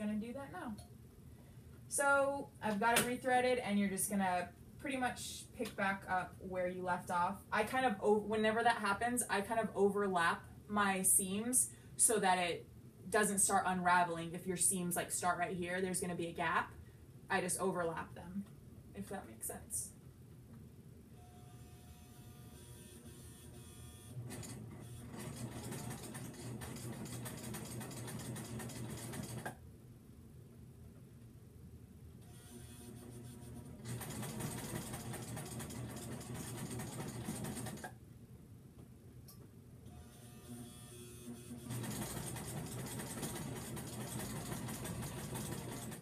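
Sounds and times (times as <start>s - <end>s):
sewing machine stitching: 24.1s - 29.6s, 32.9s - 37.9s, 40.6s - 46.0s.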